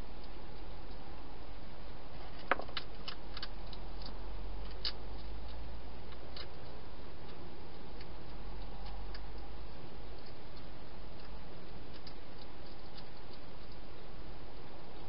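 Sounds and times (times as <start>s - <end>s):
steady hiss with low hum: 0.0s - 15.0s
hedgehog crunching dry food: 2.2s - 13.9s.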